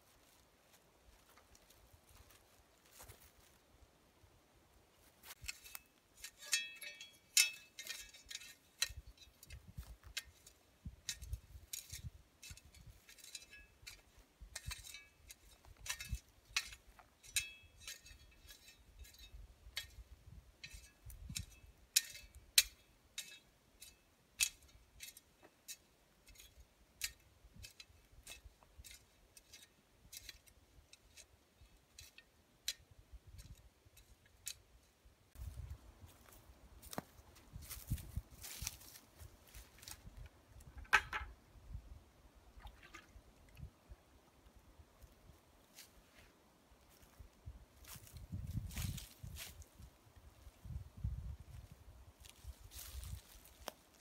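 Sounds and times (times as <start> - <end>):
dry leaves crackling underfoot: 35.4 - 40.2, 47.8 - 50.6, 52.1 - 54.0.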